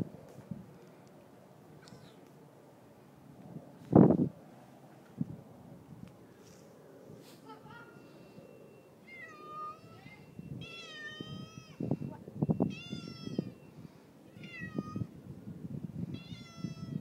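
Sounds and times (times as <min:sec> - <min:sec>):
cat meowing: 0:09.1 - 0:11.8, 0:12.7 - 0:13.6, 0:14.3 - 0:15.1, 0:16.1 - 0:17.0.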